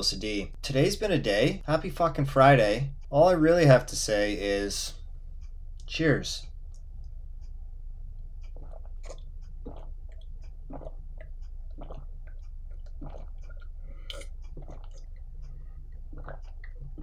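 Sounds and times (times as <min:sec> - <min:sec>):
man gulping and swallowing: 0:08.4 - 0:17.0.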